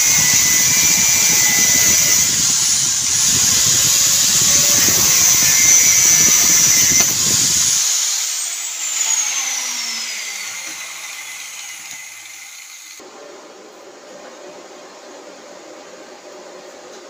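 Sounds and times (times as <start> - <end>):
angle grinder winding down: 0.0 - 13.0.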